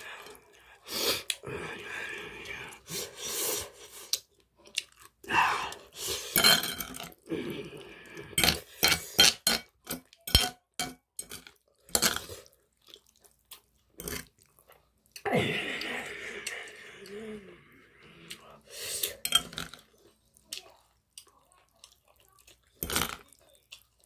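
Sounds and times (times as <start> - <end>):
person chewing food: 2.2 - 6.4, 11.5 - 15.3, 19.8 - 24.0
metal cutlery clinking on plate: 8.4 - 12.3.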